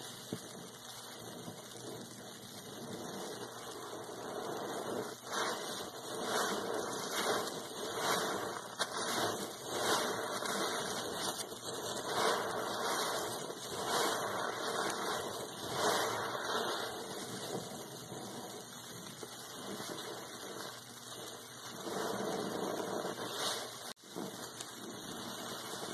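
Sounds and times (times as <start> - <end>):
water gushing: 0.0 - 25.9
sponge squelching in suds: 4.2 - 17.3.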